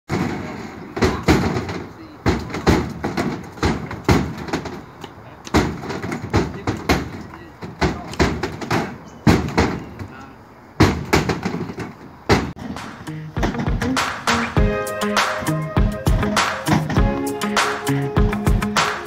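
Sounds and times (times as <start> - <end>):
coconuts landing in truck bed: 0.1 - 4.9, 5.5 - 10.2, 10.8 - 12.8.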